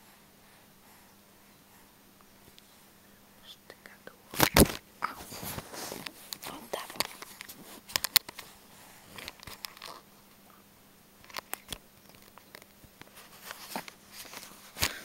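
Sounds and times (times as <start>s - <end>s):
soft rustles: 4.4s - 10.6s, 11.2s - 15.0s.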